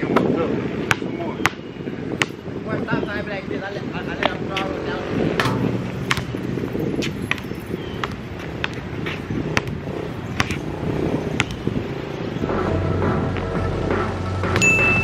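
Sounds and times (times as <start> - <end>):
basketball bouncing on concrete: 0.2 - 2.4, 5.3 - 11.8
low outdoor rumble: 3.6 - 15.0.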